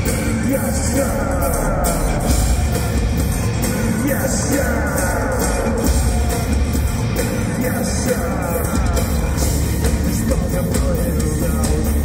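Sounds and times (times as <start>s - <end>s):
distorted electric guitar: 0.0s - 12.0s
heavy drum beat: 0.0s - 12.0s.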